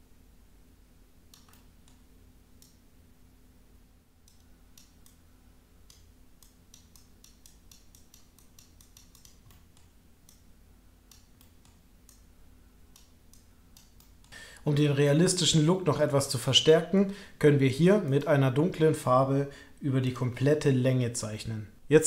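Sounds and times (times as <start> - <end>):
low steady hum: 0.0 - 22.0
computer clicks: 1.3 - 2.0, 5.8 - 10.5.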